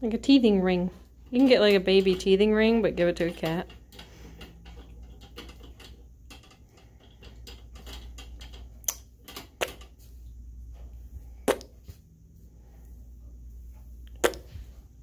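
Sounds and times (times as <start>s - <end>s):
teeth clicking on metal wire: 3.1s - 10.0s.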